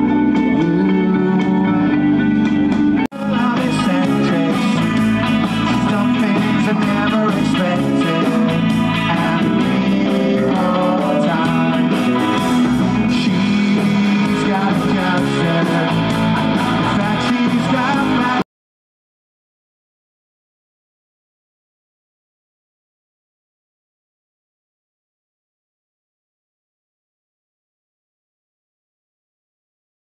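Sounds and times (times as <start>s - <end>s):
bass and drums: 0.0s - 18.4s
electric guitars: 0.0s - 18.4s.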